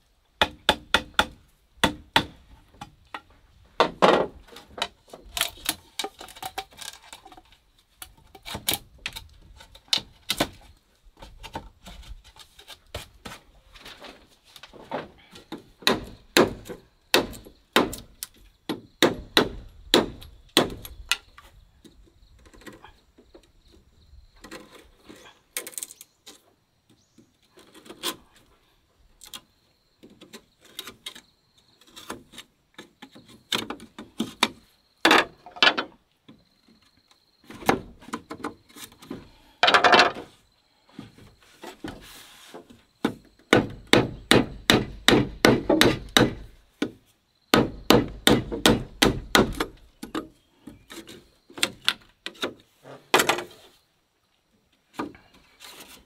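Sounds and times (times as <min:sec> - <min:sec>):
wood being hammered: 0:00.4 - 0:02.9, 0:15.5 - 0:21.0, 0:43.0 - 0:49.8.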